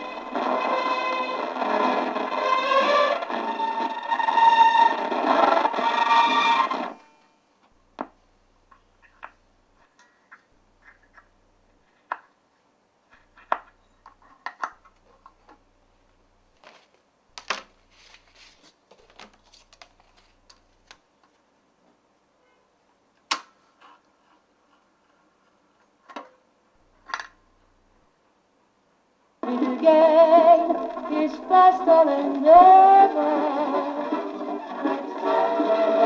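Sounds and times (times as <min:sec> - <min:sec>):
electric guitar music from record player: 0:00.0 - 0:07.1, 0:29.4 - 0:36.0.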